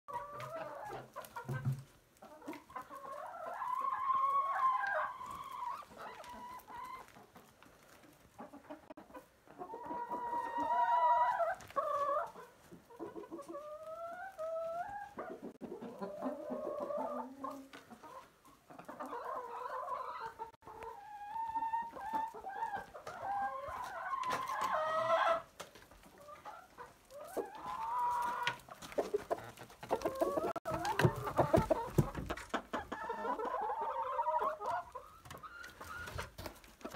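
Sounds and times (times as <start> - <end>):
hens and roosters clucking: 0.1 - 36.9.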